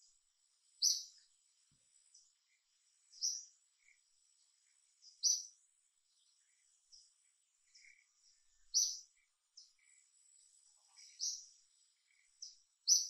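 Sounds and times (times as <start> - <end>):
faint high-pitched whine: 0.0 - 13.0
high-pitched bird chirps: 0.8 - 1.1, 8.7 - 9.0.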